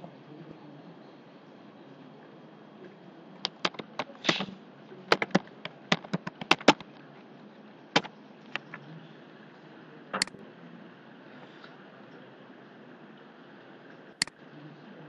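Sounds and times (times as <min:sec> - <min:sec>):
computer keyboard keys clicking: 0:03.4 - 0:04.4, 0:05.1 - 0:06.9.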